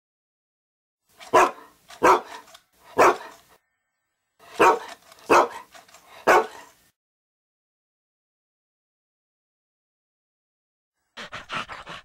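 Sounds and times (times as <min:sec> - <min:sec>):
dog barking: 0:01.2 - 0:03.4, 0:04.4 - 0:06.8.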